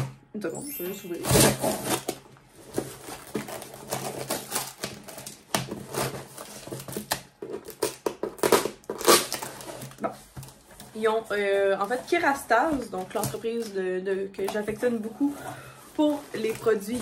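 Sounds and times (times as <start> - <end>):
packaging crackling and rustling: 1.1 - 17.0.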